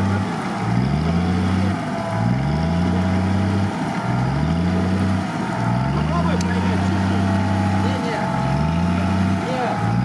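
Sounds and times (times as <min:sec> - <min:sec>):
off-road engine revving: 0:00.0 - 0:10.0.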